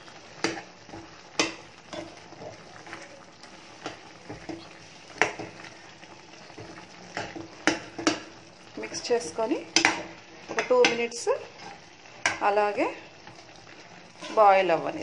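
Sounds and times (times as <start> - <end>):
chicken sizzling in a pan: 0.0 - 15.0
utensil scraping and knocking pan: 14.2 - 14.5.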